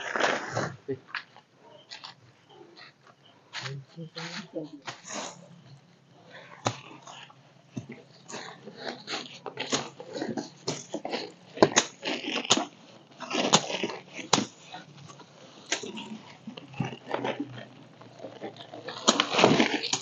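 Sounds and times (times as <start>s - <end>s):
twigs snapping: 6.3s - 20.0s.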